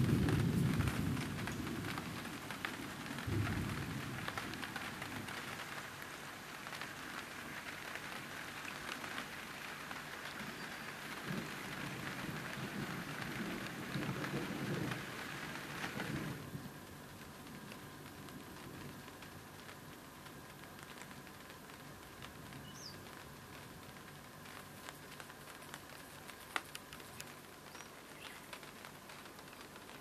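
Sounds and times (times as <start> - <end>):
distant thunder rumbles: 0.0 - 7.4, 10.1 - 16.8
rain pattering on water: 0.0 - 30.0.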